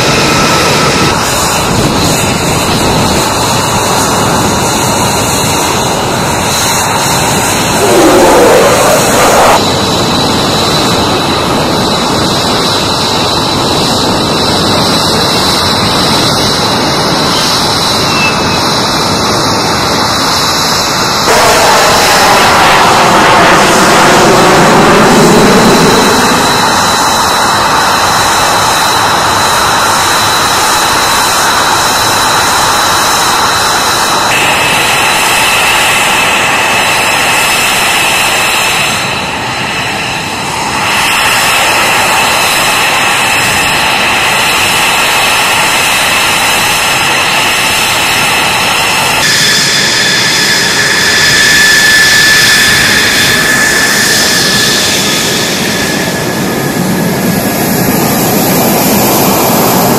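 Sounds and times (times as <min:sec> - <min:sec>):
jet engines roaring: 0:00.0 - 0:59.9
high whining tones: 0:05.2 - 0:11.1, 0:16.6 - 0:29.5, 0:38.5 - 0:59.9.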